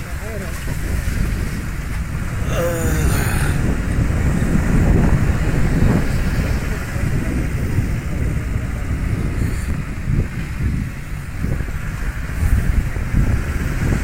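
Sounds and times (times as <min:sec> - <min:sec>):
engine and tyre rumble: 0:00.0 - 0:14.0
wind buffeting microphone: 0:00.0 - 0:14.0.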